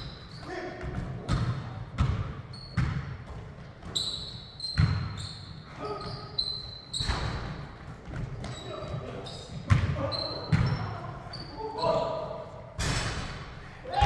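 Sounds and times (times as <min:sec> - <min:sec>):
basketball and feet thudding: 0:00.0 - 0:10.9
sneaker squeaks: 0:00.0 - 0:12.5.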